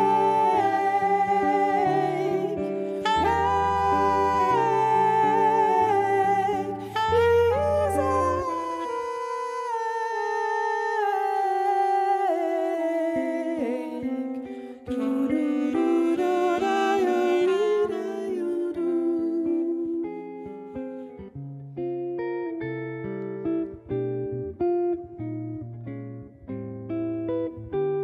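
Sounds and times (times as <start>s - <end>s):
wordless singing: 0.0s - 19.8s
guitar: 0.0s - 28.0s
saxophone: 0.0s - 28.0s.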